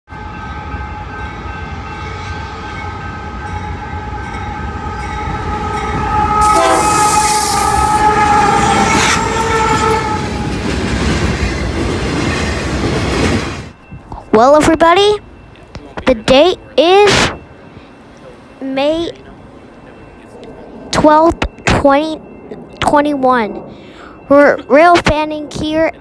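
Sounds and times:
rush of passing train: 0:00.1 - 0:26.0
locomotive air horn: 0:04.6 - 0:10.5
freight cars rolling over rails: 0:05.2 - 0:16.0.

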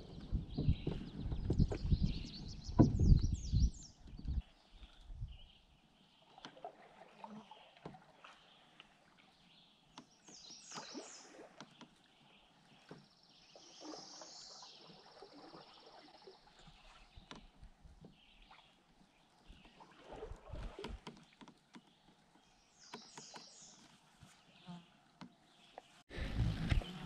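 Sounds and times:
paddle knocks: 0:00.0 - 0:03.4
songbirds calling: 0:00.0 - 0:26.0
paddle splashing water: 0:00.0 - 0:27.0.

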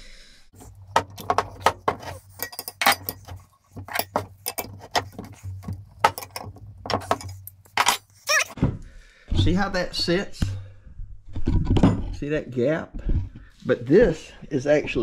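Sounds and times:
wrenches clinking on metal: 0:00.6 - 0:08.6.

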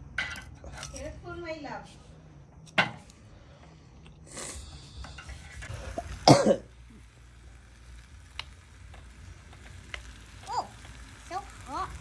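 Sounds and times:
short burst of hiss: 0:04.2 - 0:07.8
person coughing: 0:06.2 - 0:06.7.

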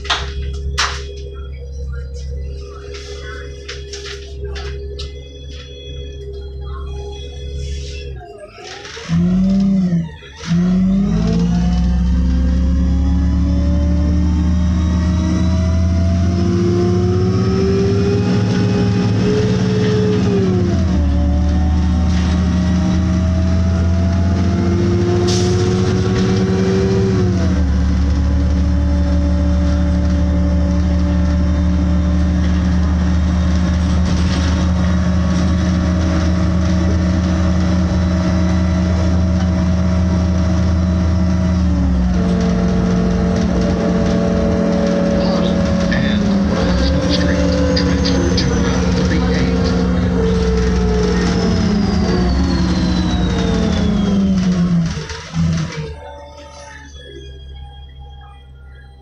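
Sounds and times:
bus engine accelerating: 0:00.0 - 0:59.0.

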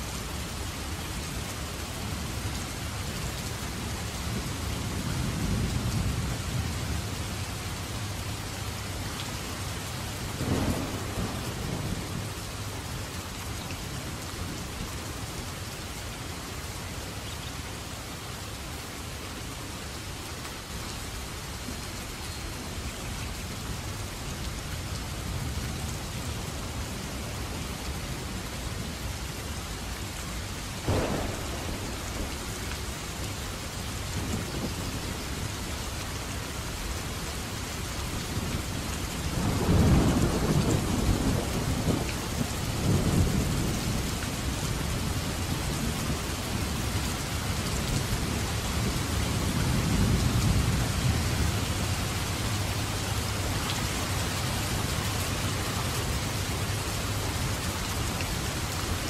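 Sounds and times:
heavy rain falling: 0:00.0 - 0:59.0
low rumble of thunder: 0:10.2 - 0:13.0, 0:30.8 - 0:35.9, 0:38.2 - 0:47.0, 0:47.6 - 0:57.9
thunder crack: 0:30.9 - 0:32.9.

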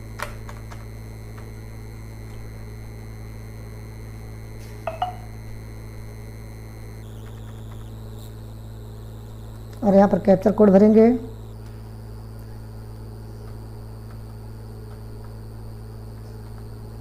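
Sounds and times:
low electrical hum: 0:00.0 - 0:17.0
thin high whines: 0:00.8 - 0:12.2.

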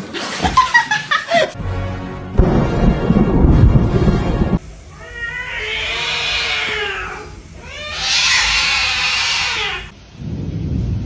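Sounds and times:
cat yowling: 0:04.9 - 0:09.9.

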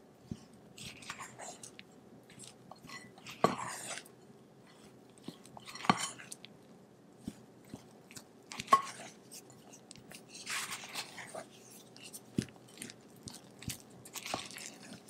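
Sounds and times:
spatula scraping batter in bowl: 0:00.3 - 0:04.1, 0:04.7 - 0:06.4, 0:08.5 - 0:15.0.

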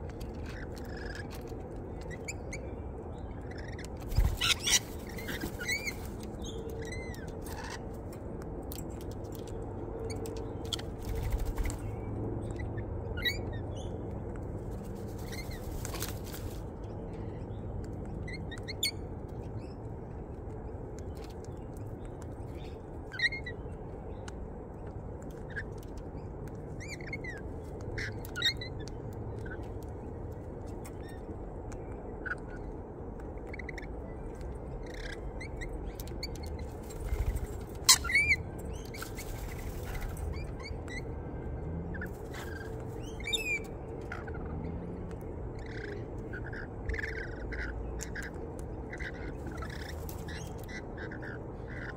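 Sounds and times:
parrots chirping and calling: 0:03.4 - 0:08.0, 0:37.3 - 0:41.0, 0:45.5 - 0:51.9.

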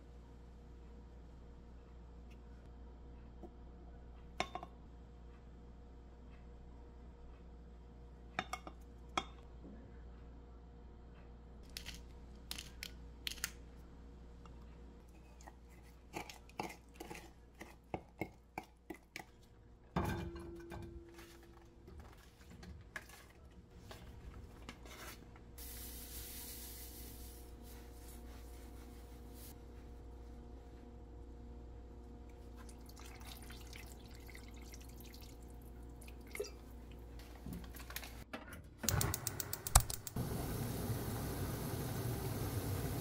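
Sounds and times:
steady high hiss: 0:25.6 - 0:29.6.

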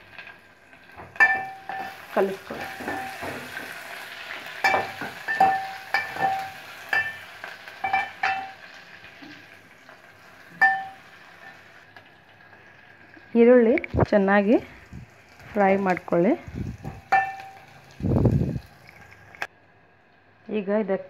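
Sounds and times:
frying sizzle: 0:00.0 - 0:20.7
metal ladle clinking against pot: 0:01.2 - 0:03.4, 0:04.6 - 0:08.6, 0:10.6 - 0:11.0, 0:16.9 - 0:17.7.

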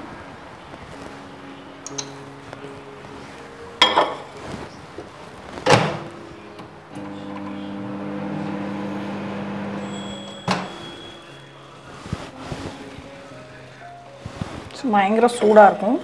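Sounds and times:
microwave door shutting: 0:05.6 - 0:11.2
microwave humming: 0:05.6 - 0:11.8
high beep: 0:09.8 - 0:11.4.

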